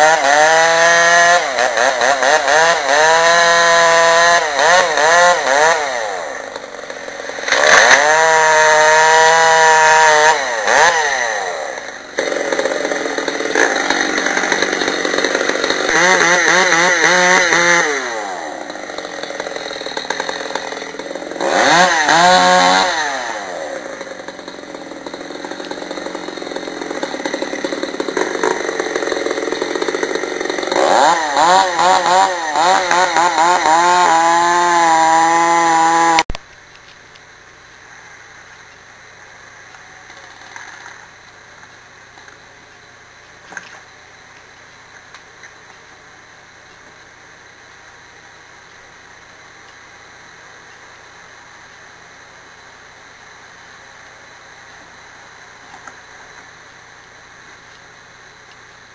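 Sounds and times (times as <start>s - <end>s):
chainsaw revving: 0.0s - 36.4s.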